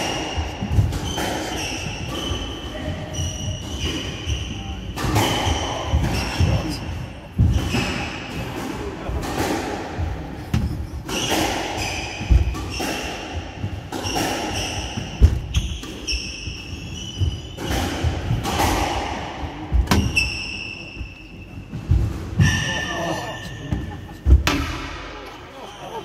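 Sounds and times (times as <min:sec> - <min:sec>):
shoes squeaking on wooden floor: 0:10.5 - 0:18.4.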